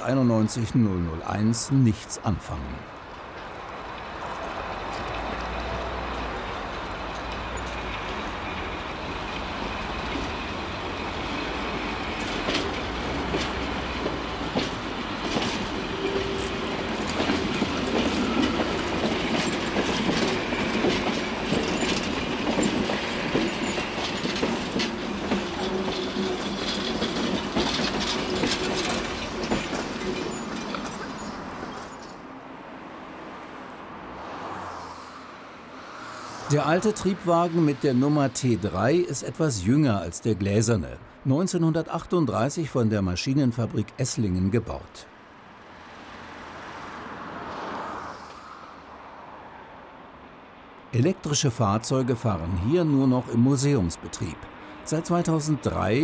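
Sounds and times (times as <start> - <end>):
train running hum: 0.2 - 34.7
train wheels clicking over rail joints: 3.0 - 32.2.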